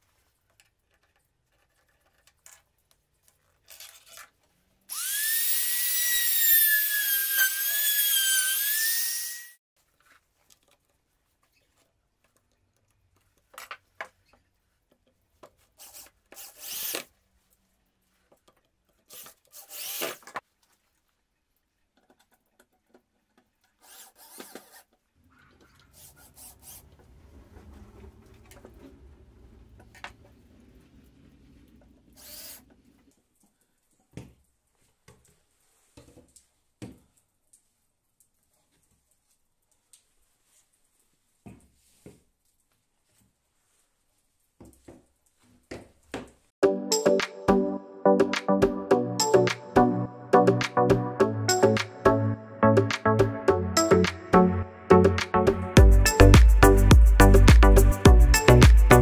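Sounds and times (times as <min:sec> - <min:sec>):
electric drill boring into board: 0:04.9 - 0:09.6, 0:19.6 - 0:20.2.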